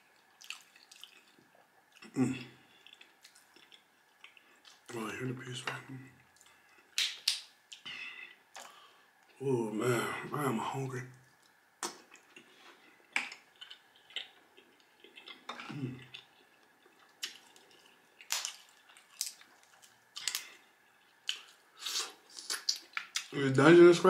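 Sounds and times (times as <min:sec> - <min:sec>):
crab shells snapping: 0:07.0 - 0:07.5, 0:18.2 - 0:20.5.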